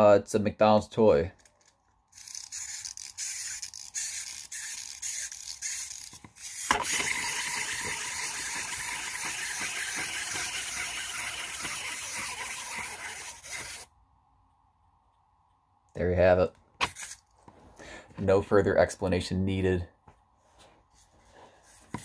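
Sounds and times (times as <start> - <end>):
toy clicking and ratcheting: 1.4 - 13.9, 16.8 - 17.2
toy wing mechanism whirring: 1.4 - 13.9, 16.8 - 17.3.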